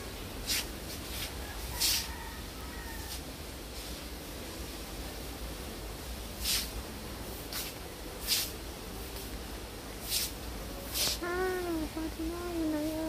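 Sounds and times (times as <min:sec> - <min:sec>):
short hissing bursts: 0:00.4 - 0:02.1, 0:06.4 - 0:06.8, 0:07.4 - 0:08.5, 0:10.0 - 0:11.3.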